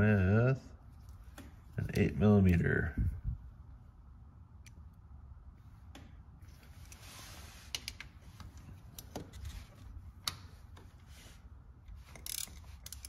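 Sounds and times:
ratchet wrench clicks: 12.2s - 13.0s.

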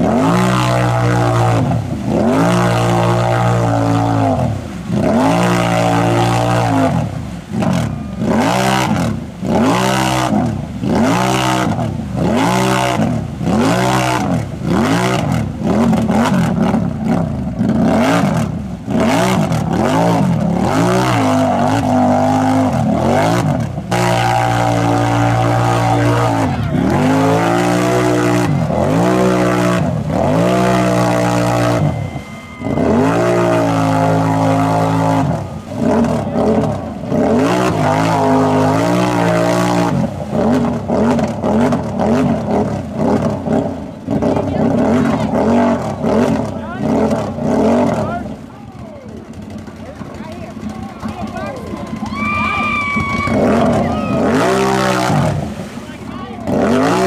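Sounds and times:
quad engine revving: 0.0s - 48.5s, 49.1s - 57.0s.

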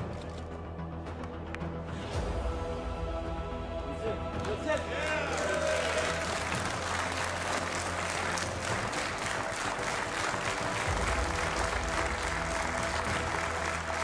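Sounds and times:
audience applauding: 4.4s - 14.0s.

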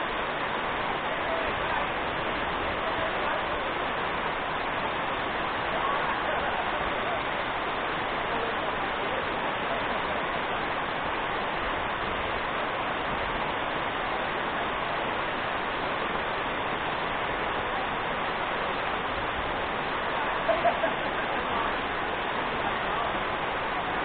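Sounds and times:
waterfall rushing: 0.0s - 24.0s.

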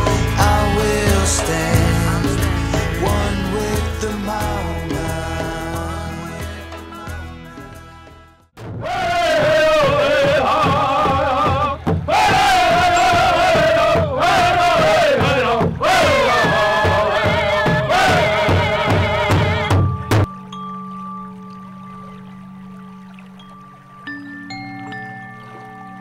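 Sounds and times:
men chanting in unison: 0.1s - 6.3s, 8.8s - 19.7s
large drum beating: 8.6s - 20.3s.

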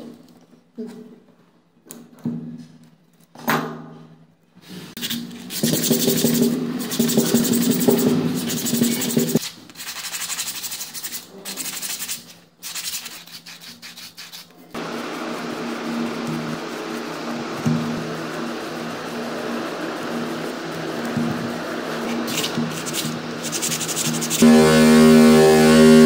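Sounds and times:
sandpaper rubbing on metal: 4.9s - 14.8s, 15.4s - 26.0s.

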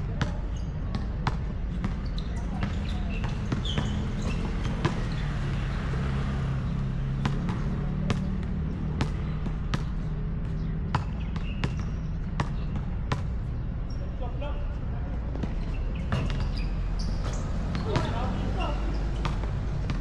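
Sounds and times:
basketball bouncing on court: 0.0s - 13.9s, 15.3s - 20.0s.

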